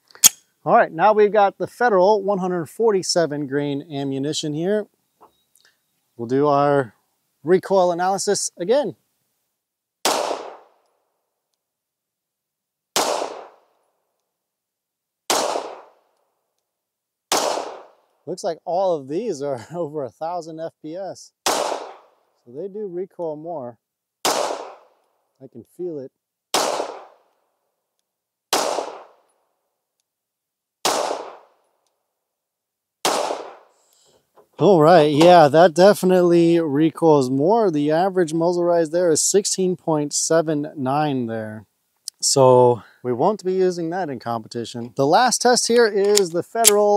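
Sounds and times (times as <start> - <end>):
pistol shots: 10.0 - 10.8, 12.9 - 13.7, 15.3 - 16.0, 17.3 - 18.0, 21.4 - 22.1, 24.2 - 25.0, 26.5 - 27.3, 28.5 - 29.2, 30.8 - 31.6, 33.0 - 33.7.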